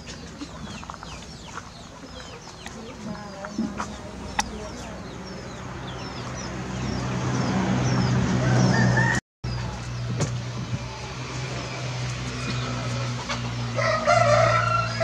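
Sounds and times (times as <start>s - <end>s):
small birds chirping: 0.0s - 8.6s.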